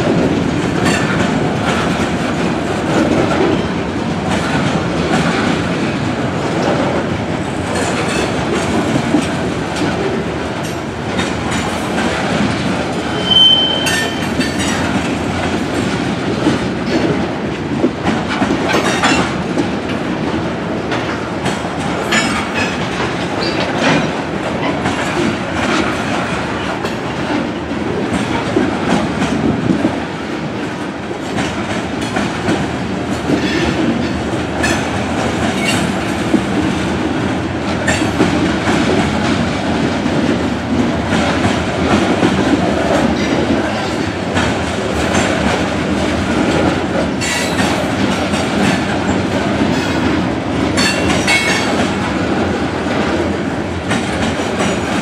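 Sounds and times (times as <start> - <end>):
freight train wheels clicking: 0.0 - 55.0
short high squeal: 13.1 - 14.2.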